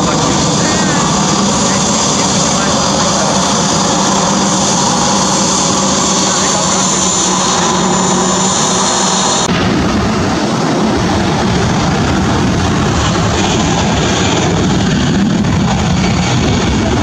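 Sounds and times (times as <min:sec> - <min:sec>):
jet engine high whine: 0:00.0 - 0:17.0
jet engine roar: 0:00.0 - 0:17.0.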